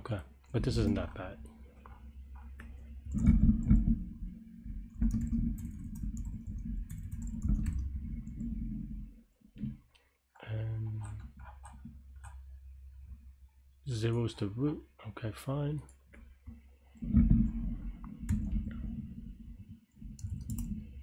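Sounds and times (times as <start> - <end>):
typing on a keyboard: 4.9 - 8.5, 10.4 - 12.4, 20.0 - 21.0.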